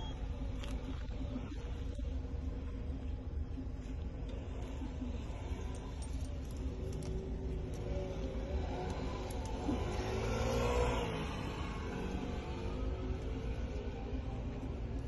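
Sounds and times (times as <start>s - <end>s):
car engine running: 0.0s - 15.0s
engine accelerating: 4.3s - 15.0s.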